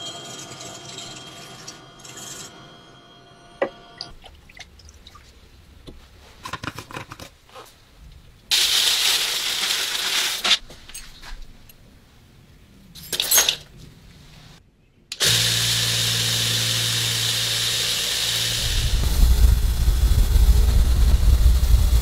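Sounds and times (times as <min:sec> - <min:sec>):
low motor hum: 0:15.2 - 0:22.0.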